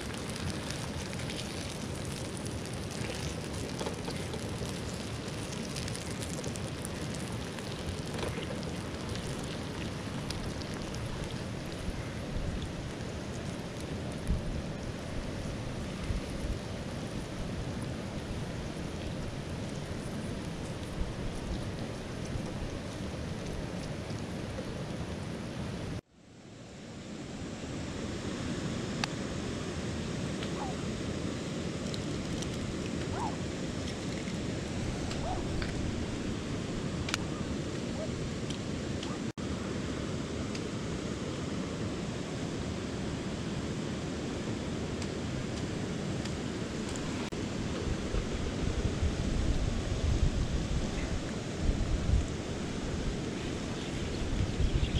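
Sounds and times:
water rushing over rocks: 0.0 - 26.0.

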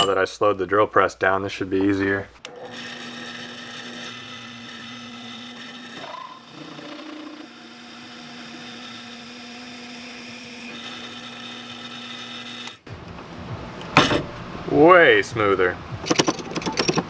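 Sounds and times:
drill press motor hum: 2.4 - 12.9
hole saw grinding metal: 2.4 - 12.9.

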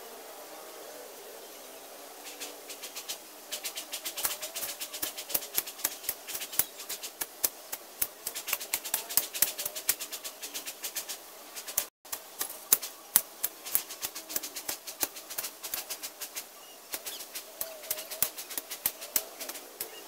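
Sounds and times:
hand tool cutting weeds: 2.8 - 20.0.

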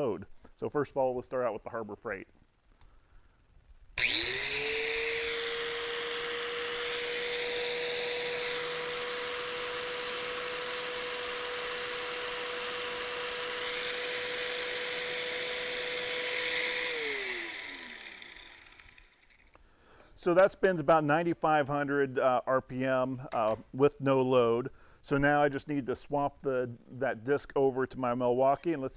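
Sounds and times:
angle grinder whining: 4.0 - 19.6.

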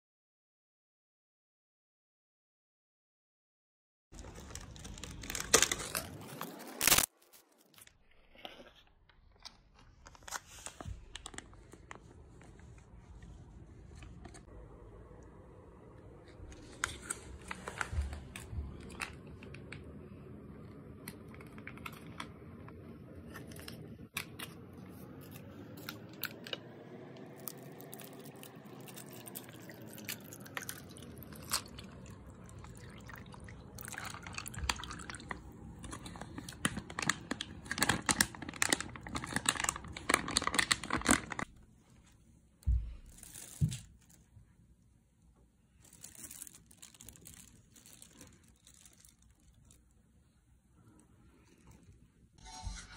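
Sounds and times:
plastic drink pouch crinkling: 4.2 - 7.9, 10.0 - 12.6, 27.4 - 41.5, 43.0 - 44.3, 45.7 - 50.0.

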